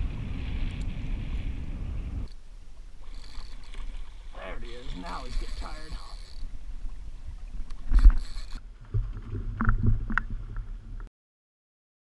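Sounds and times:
choppy water around kayak: 0:00.0 - 0:11.1
wind: 0:00.0 - 0:11.1.

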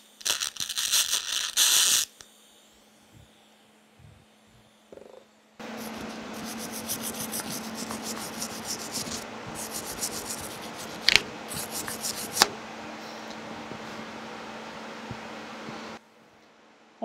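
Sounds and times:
steady low hum: 0:02.1 - 0:17.0
wire brush scrubbing metal: 0:05.6 - 0:12.5.

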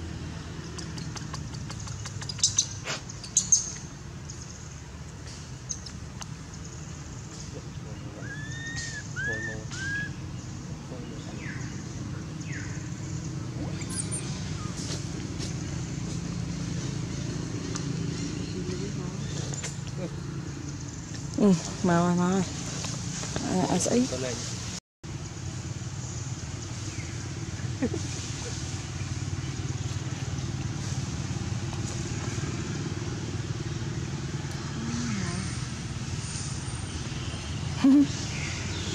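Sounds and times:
vehicle engine rumble: 0:00.0 - 0:38.9.

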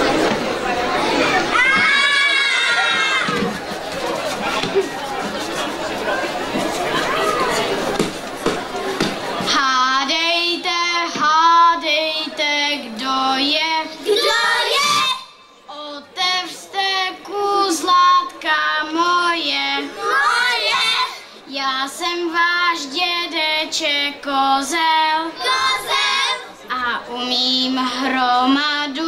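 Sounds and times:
children singing: 0:13.2 - 0:15.3, 0:18.9 - 0:21.3, 0:24.7 - 0:26.4.

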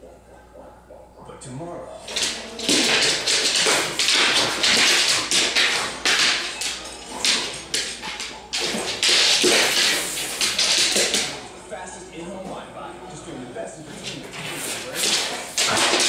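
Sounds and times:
dog pawing on hardwood floor: 0:02.0 - 0:11.5, 0:13.9 - 0:16.0.

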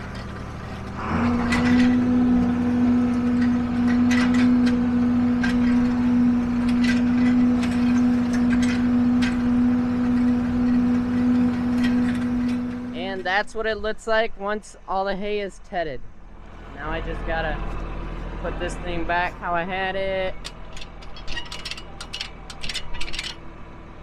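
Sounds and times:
tractor diesel engine under load: 0:00.0 - 0:14.0, 0:16.2 - 0:24.0
light clicks and rattles: 0:20.4 - 0:23.4.

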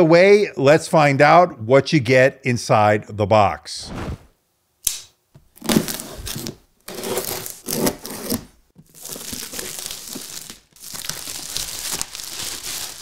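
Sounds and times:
plastic shrink wrap crinkling: 0:05.6 - 0:13.0.

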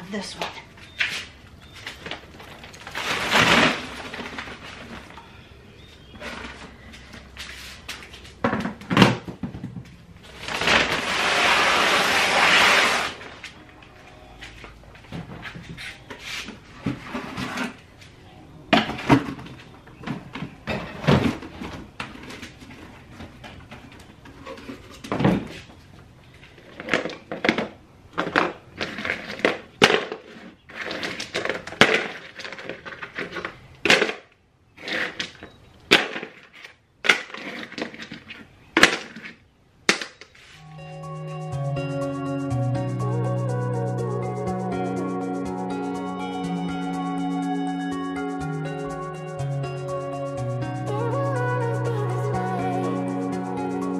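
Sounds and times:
objects knocking and clattering: 0:08.4 - 0:10.0.

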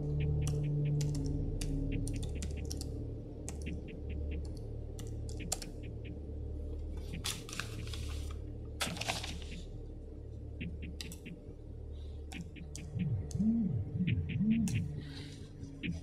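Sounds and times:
laptop keyboard typing: 0:00.4 - 0:02.8
paper rustling: 0:07.1 - 0:09.6.

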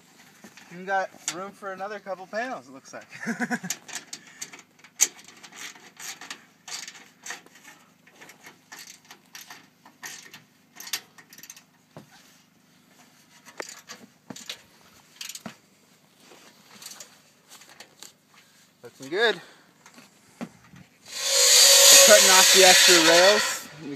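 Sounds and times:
metallic clicks and scrapes: 0:03.6 - 0:11.9, 0:13.2 - 0:15.5, 0:21.1 - 0:23.7.

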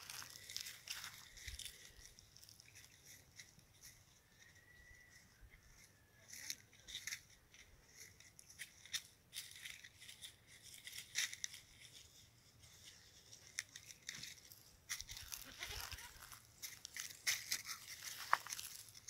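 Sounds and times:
goats tearing and chewing grass: 0:00.0 - 0:19.0
rustles in dry leaves: 0:00.0 - 0:19.0.

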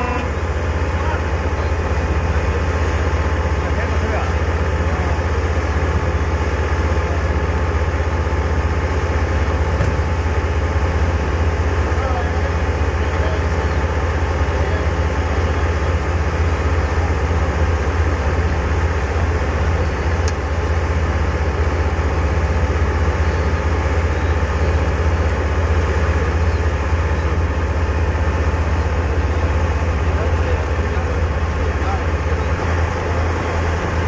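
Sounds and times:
truck engine idling: 0:00.0 - 0:34.0.

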